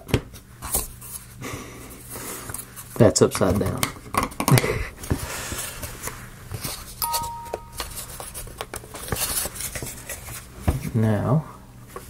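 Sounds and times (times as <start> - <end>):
two-note beep: 7.0 - 8.1.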